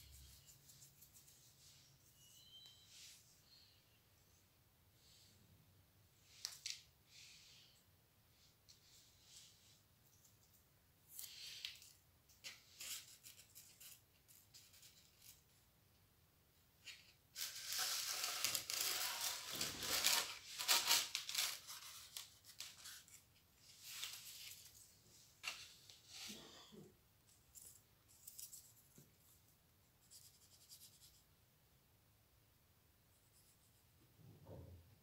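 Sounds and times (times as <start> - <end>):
paper rustling: 16.8 - 26.4.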